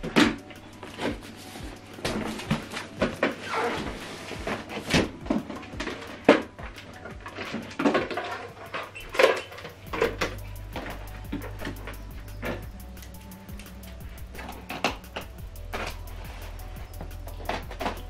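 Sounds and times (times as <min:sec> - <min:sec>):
cardboard rustling and scraping: 0:00.8 - 0:06.6.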